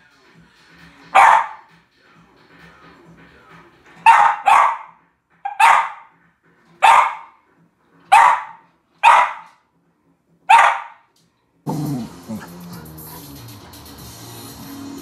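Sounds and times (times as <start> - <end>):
dog barking: 1.1 - 1.7, 4.0 - 6.2, 6.8 - 7.4, 8.1 - 9.6, 10.5 - 11.1.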